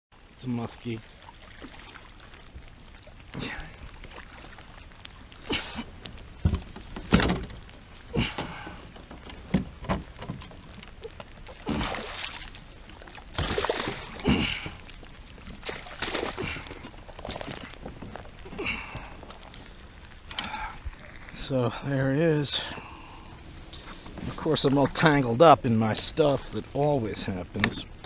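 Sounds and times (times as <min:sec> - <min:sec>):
sharp knocks on kayak: 0:06.4 - 0:07.6
fish splashing in water: 0:10.9 - 0:21.2.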